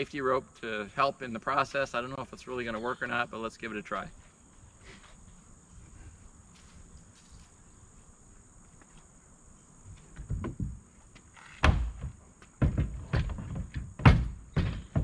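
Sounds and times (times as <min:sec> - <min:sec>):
crickets chirring: 0:00.0 - 0:15.0
plastic hull thump: 0:11.6 - 0:15.0.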